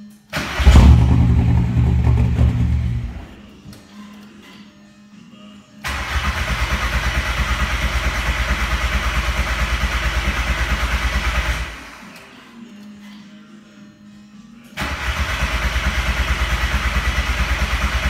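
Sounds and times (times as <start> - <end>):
diesel engine idling and revving: 0.5 - 3.4, 5.9 - 11.8, 14.8 - 18.0.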